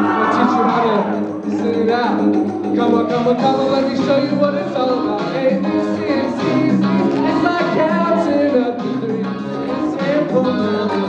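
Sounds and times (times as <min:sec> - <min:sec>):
music with singing voice: 0:00.0 - 0:11.0.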